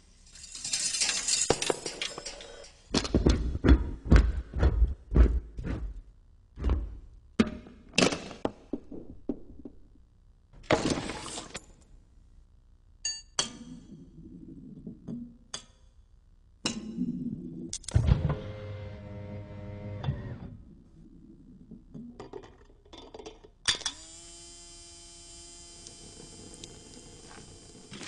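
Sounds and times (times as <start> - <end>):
metal parts clinking and knocking: 0.3 - 3.2.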